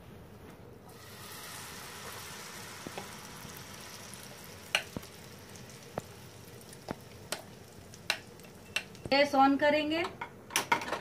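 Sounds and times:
batter sizzling in hot oil: 0.9 - 9.3.

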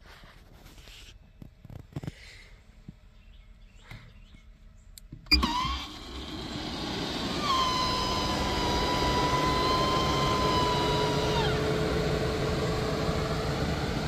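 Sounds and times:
engine-like drone with high whine: 5.3 - 14.0.

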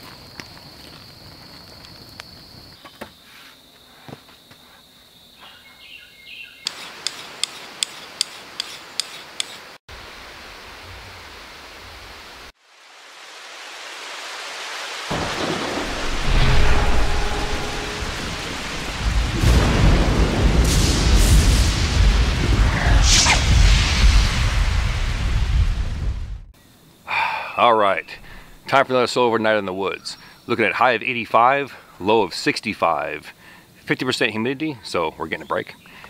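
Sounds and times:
rain: 6.8 - 26.5
rumbling thunder: 15.1 - 26.5.

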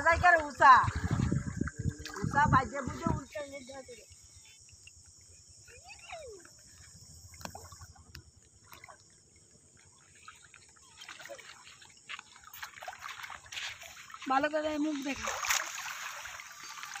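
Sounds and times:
night insects droning: 0.0 - 17.0
people wading through shallow water: 0.0 - 17.0.

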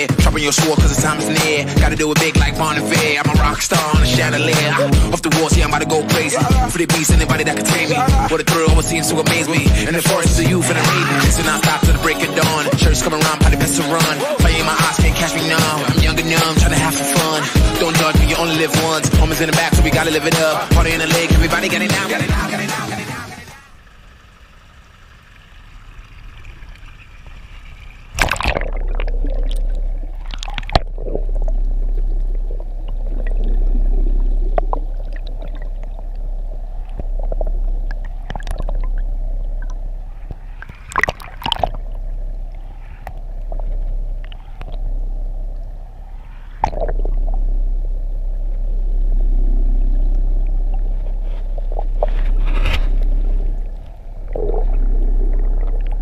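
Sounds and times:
deep underwater rumble: 0.0 - 21.8, 23.6 - 56.0
water sloshing and gurgling: 23.7 - 56.0.

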